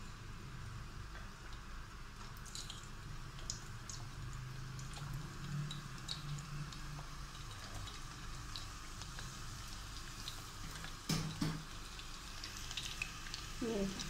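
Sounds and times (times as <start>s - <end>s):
garlic sizzling in hot oil: 0.0s - 14.0s.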